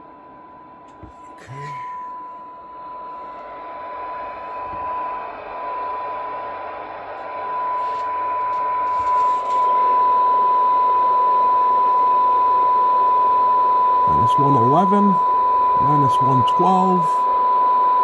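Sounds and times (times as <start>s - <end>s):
steady test tone: 0.9s - 5.2s, 13.6s - 17.4s.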